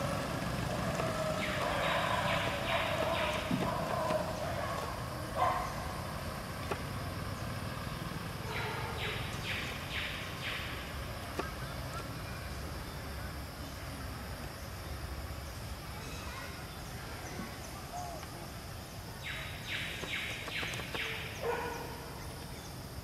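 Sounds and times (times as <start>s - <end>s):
low outdoor rumble: 0.0s - 22.7s.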